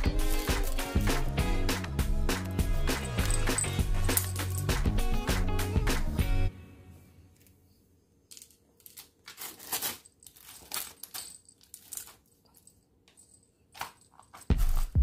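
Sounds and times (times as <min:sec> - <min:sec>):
music: 0:00.0 - 0:07.3, 0:14.5 - 0:15.0.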